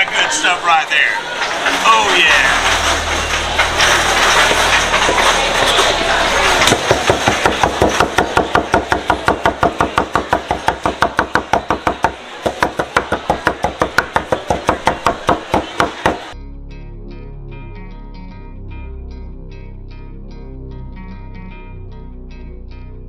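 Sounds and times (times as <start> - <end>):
knife chopping on wooden board: 6.7 - 16.3.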